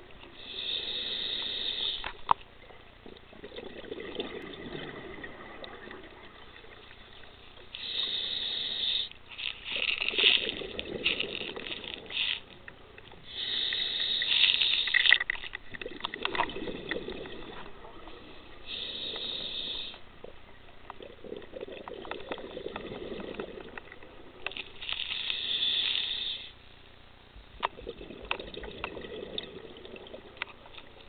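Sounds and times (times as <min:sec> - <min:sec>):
hissing regulator inhale: 0:00.3 - 0:02.2, 0:07.7 - 0:10.4, 0:13.2 - 0:15.1, 0:18.6 - 0:20.0, 0:24.8 - 0:26.6
exhaled bubbles rushing: 0:03.3 - 0:06.9, 0:10.1 - 0:12.2, 0:15.7 - 0:18.6, 0:21.0 - 0:24.4, 0:27.8 - 0:30.4.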